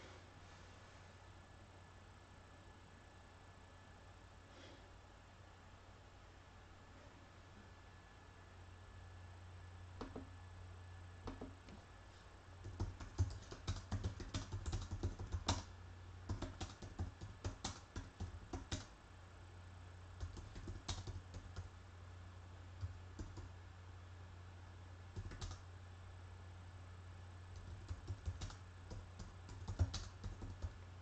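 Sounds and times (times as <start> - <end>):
typing on computer keyboard: 12.6 - 15.7, 16.3 - 18.9, 20.2 - 21.7, 22.8 - 23.5, 25.2 - 25.6, 27.6 - 30.8.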